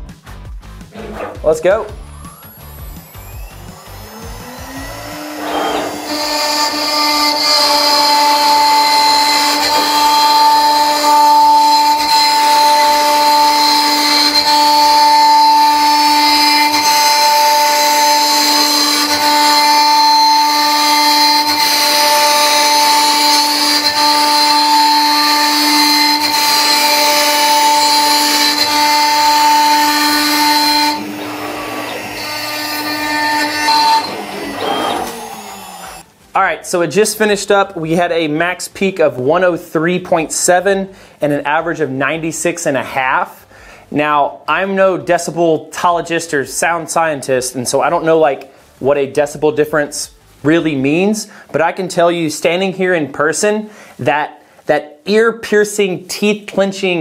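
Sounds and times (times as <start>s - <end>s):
hiss of cutting wood: 0.9s - 10.1s
router spindle whining: 0.9s - 36.1s.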